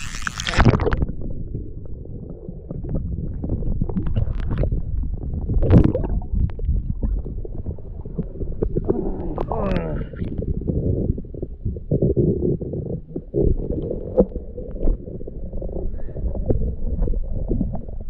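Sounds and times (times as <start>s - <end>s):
camera plunging into water: 0.0s - 1.2s, 5.6s - 7.2s
muffled underwater rumble: 0.0s - 18.0s.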